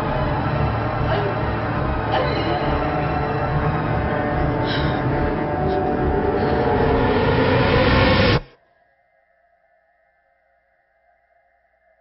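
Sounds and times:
dense overlapping soundtrack tones: 0.0 - 8.8.

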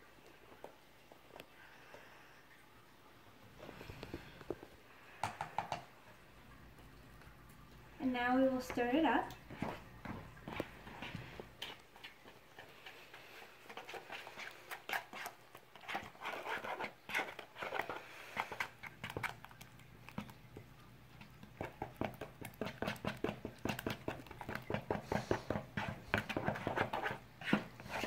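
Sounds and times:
spatula scraping plastic bowl: 8.6 - 20.4, 21.2 - 28.0.

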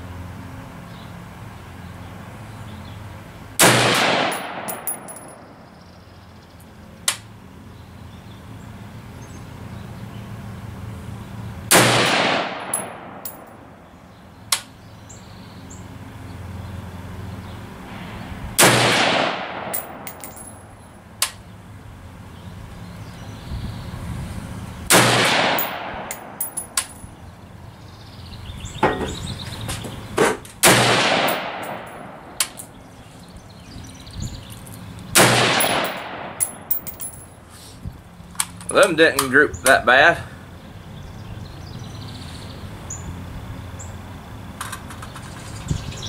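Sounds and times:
rifle shots: 3.6 - 5.4, 11.7 - 13.6, 18.6 - 20.4, 24.9 - 26.5, 30.6 - 32.4, 35.2 - 37.2.

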